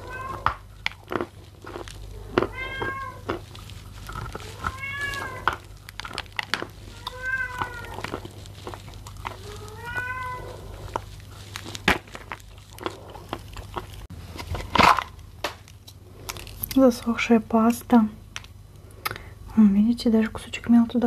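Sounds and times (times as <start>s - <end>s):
cat meowing: 0.0s - 0.5s, 2.4s - 3.3s, 4.4s - 5.6s, 6.9s - 8.2s, 9.4s - 10.7s
crisp crunches of chewing: 0.0s - 17.0s.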